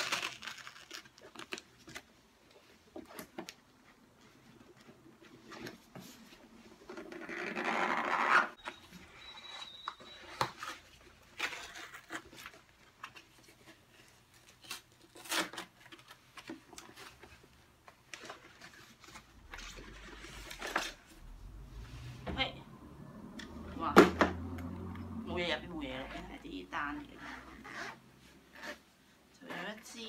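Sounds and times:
paper or tape tearing: 0.0s - 2.0s, 14.4s - 16.1s
cardboard and paper rustling: 10.1s - 21.6s.

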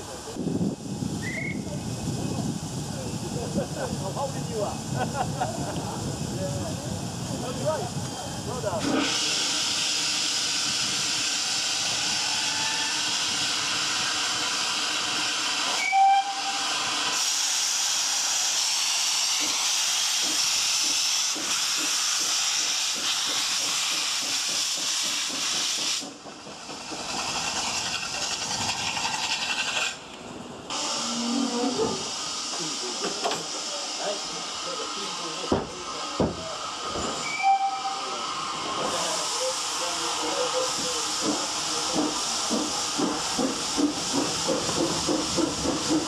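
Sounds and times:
steam venting hiss: 0.0s - 46.0s
steam whistle toot: 15.7s - 16.8s, 37.2s - 38.2s.

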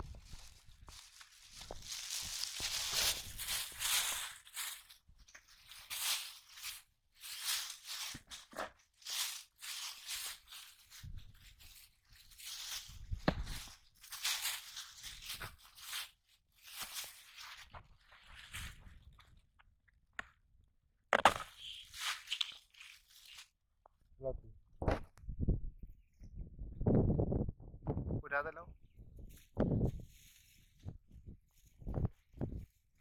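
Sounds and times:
plastic bag crinkling: 0.0s - 12.9s.

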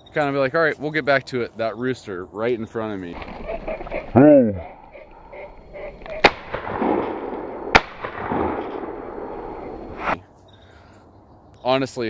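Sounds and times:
shotgun shots echoing: 6.1s - 10.2s.

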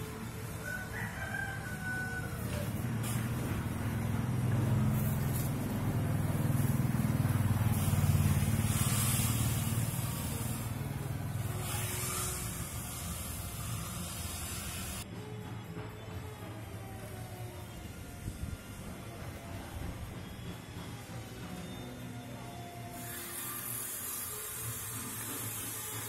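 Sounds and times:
vehicle engine passing by: 2.2s - 14.0s.

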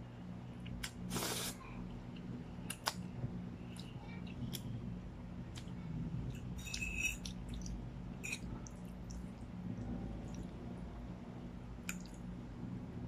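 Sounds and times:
low hum: 1.6s - 13.0s
wet chewing: 6.4s - 10.5s.

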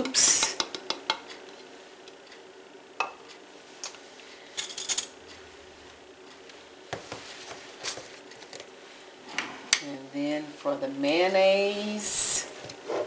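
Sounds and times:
kitchen utensils clinking: 4.5s - 5.2s.

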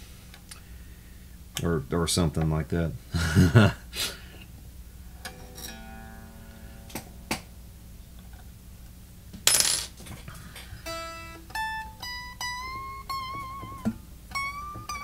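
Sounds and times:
electric guitar notes ringing: 4.7s - 9.3s, 10.8s - 15.0s.

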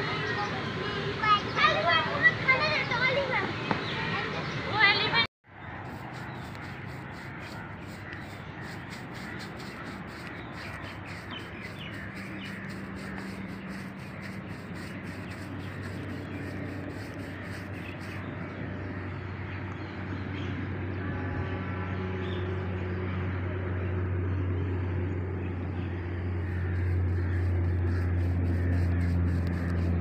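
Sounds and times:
paintbrush scrubbing: 5.8s - 18.3s, 26.4s - 30.0s.

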